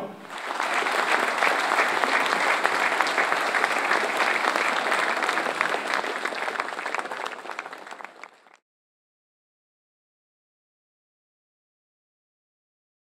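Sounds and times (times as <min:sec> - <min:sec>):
crowd applauding: 0:00.2 - 0:08.6.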